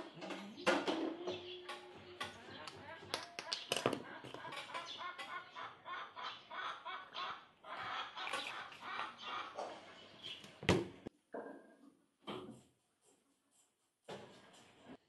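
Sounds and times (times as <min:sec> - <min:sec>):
hens clucking: 0:00.0 - 0:11.1.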